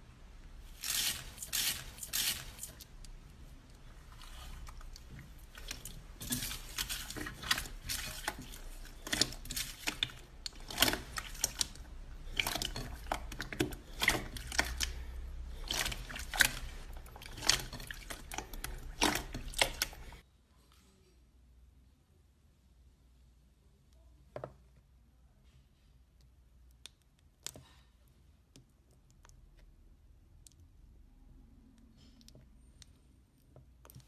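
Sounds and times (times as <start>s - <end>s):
slime crackling: 0.6s - 20.2s.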